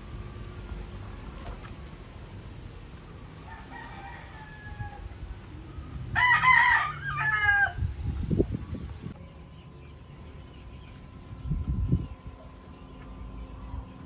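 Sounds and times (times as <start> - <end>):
distant rooster crowing: 3.3 - 5.4, 6.1 - 7.9
rooster crowing: 3.4 - 5.2, 6.1 - 7.9.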